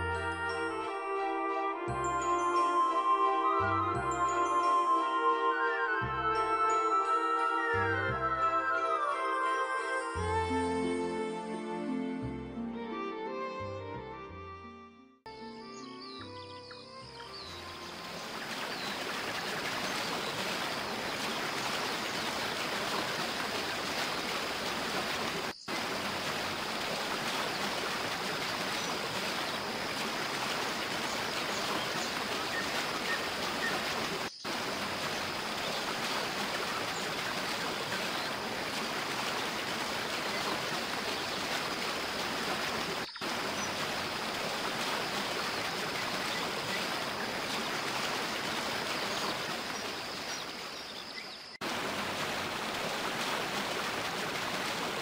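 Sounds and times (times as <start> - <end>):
waterfall roaring: 17.9 - 50.4, 51.6 - 55.0.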